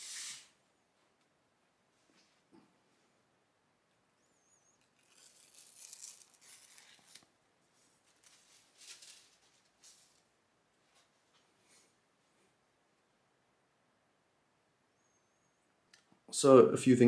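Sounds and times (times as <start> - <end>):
plastic sheet rustling and crinkling: 5.0 - 10.3.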